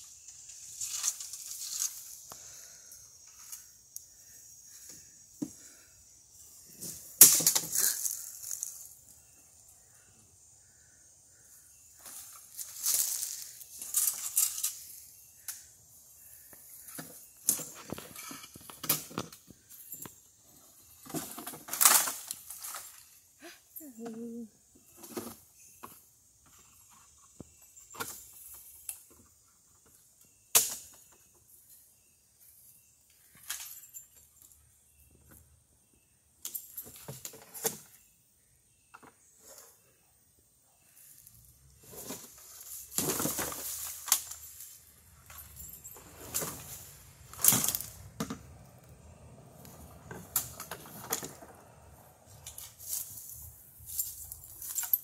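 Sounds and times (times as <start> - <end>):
bamboo and brush rustling: 0.0 - 4.9, 6.6 - 9.4, 10.7 - 19.9, 20.9 - 23.5, 40.9 - 48.9, 49.6 - 55.0.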